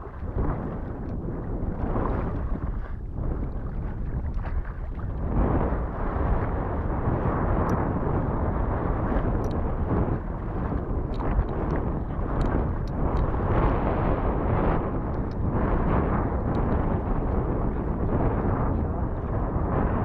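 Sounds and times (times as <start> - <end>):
water sloshing and splashing: 0.0 - 5.3, 9.1 - 13.4
wind rumbling on microphone: 0.0 - 20.0.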